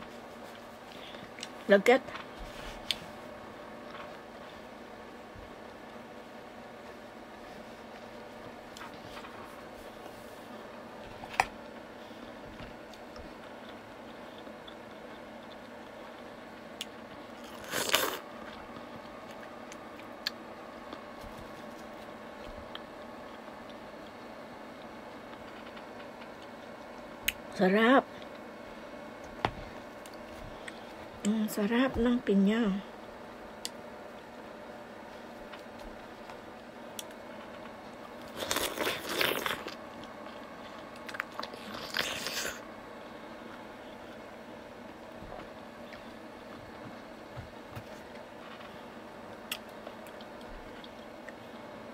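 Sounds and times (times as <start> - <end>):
crunching bites of pineapple: 17.4 - 18.3, 38.2 - 39.8, 41.0 - 42.6
wet crunch of biting fruit: 17.5 - 18.2.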